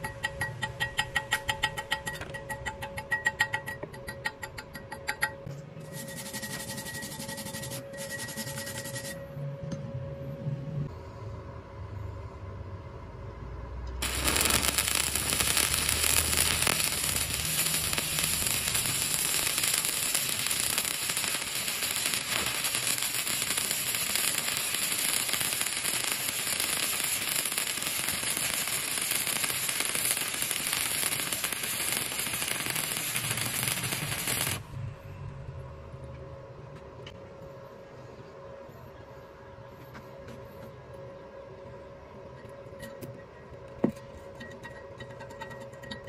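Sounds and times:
welding arc crackling: 5.9 - 9.2, 14.0 - 34.6.

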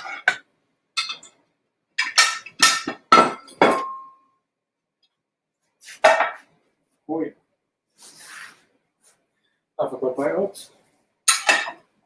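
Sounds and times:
ceramic plates clinking: 1.0 - 1.3, 11.3 - 11.8.

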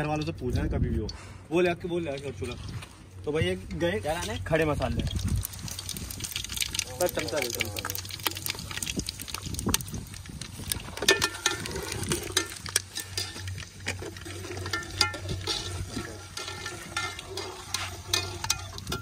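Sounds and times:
hot oil hissing: 4.0 - 19.0
metal spoon scraping pot: 11.0 - 19.0.

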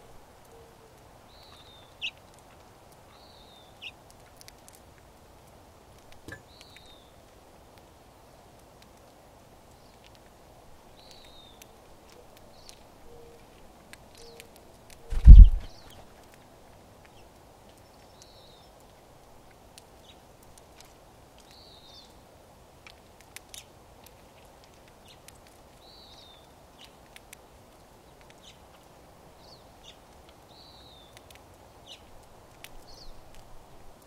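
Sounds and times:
birds cracking seeds: 9.7 - 16.4.

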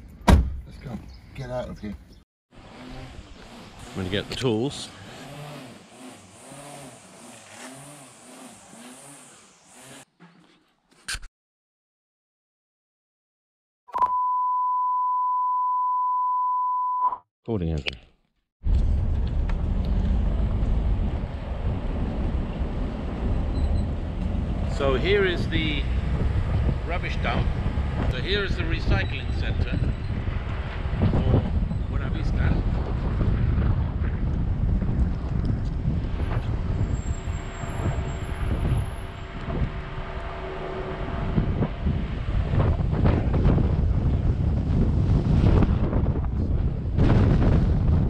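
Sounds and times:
car engine and road rumble: 0.0 - 10.0, 18.6 - 48.0
wind buffeting microphone: 20.8 - 40.2, 41.0 - 48.0.

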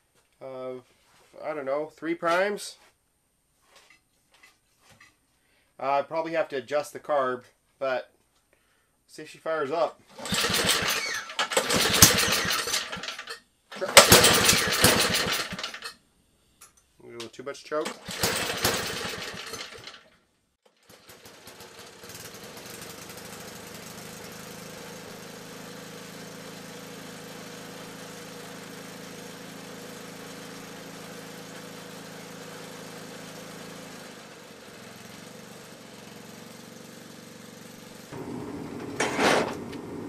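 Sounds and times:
snowblower engine running: 10.1 - 15.9, 17.9 - 20.1, 20.8 - 40.0.

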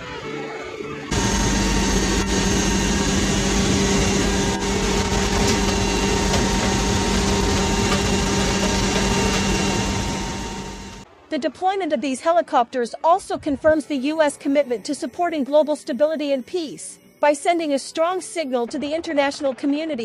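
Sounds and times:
aircraft engine drone: 1.1 - 11.1.

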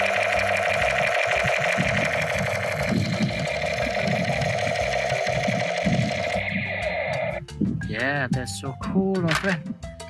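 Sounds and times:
rapid mechanical rattle: 0.0 - 7.4
toy machine gun buzzing: 0.0 - 7.4.

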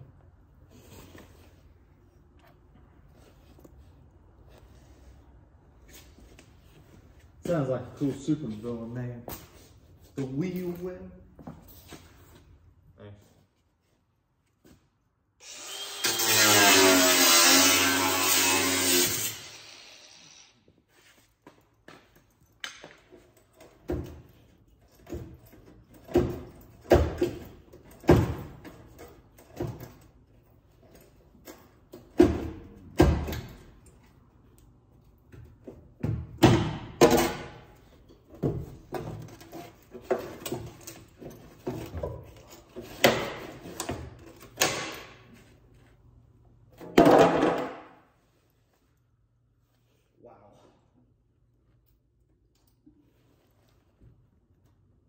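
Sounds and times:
angle grinder winding down: 15.4 - 20.5.

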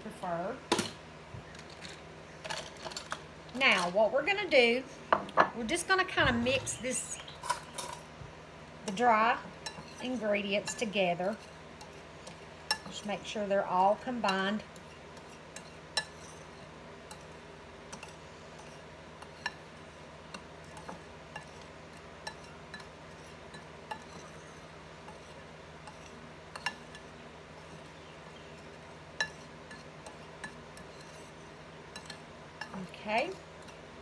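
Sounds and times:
spices scraping: 8.8 - 34.0.

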